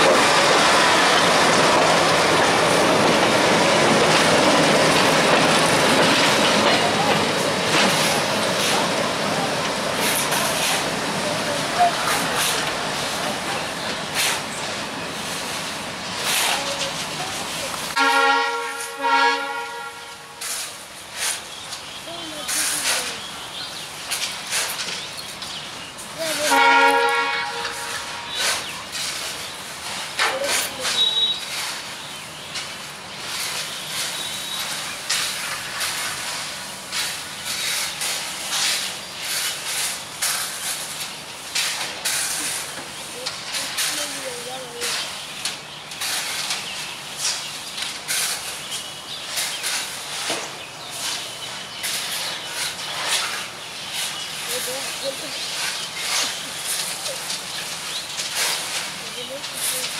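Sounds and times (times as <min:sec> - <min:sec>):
diesel locomotive horn: 0:18.0 - 0:20.5, 0:26.4 - 0:28.4.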